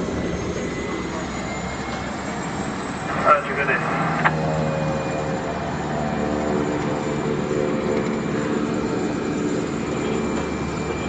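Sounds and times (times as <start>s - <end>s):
propeller airplane engines droning: 0.0s - 11.0s.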